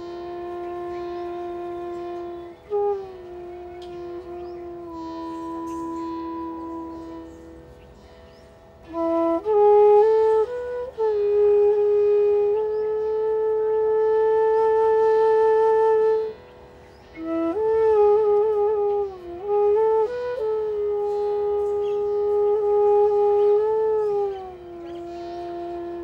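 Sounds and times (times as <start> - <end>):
flute-like long held notes: 0.0 - 26.0.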